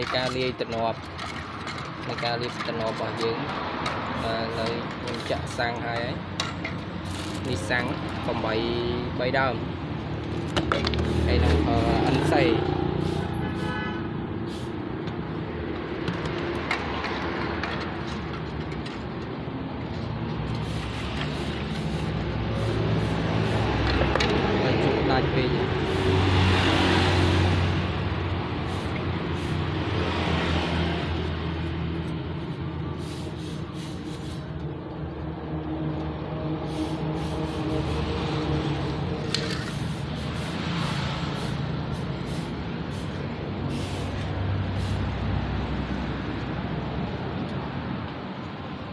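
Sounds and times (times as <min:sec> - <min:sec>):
road traffic: 0:00.0 - 0:48.9
bursts of hiss: 0:07.0 - 0:07.5, 0:14.4 - 0:14.8, 0:20.5 - 0:23.8, 0:28.6 - 0:29.8, 0:32.9 - 0:34.5, 0:36.6 - 0:38.1, 0:39.6 - 0:45.1.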